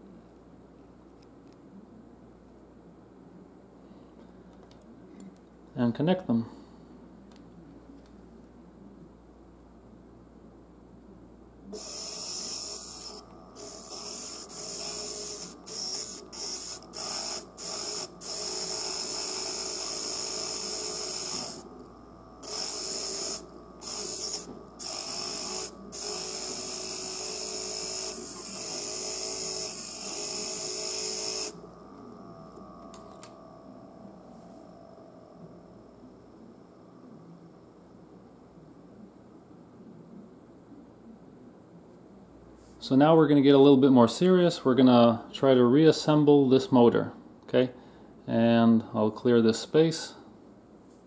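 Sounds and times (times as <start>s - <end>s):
electric motor high-pitched whine: 11.7s - 38.2s.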